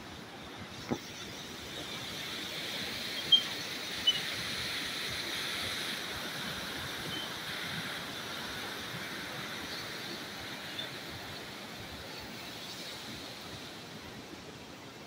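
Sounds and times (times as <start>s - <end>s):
water rushing through gates: 1.6s - 12.0s.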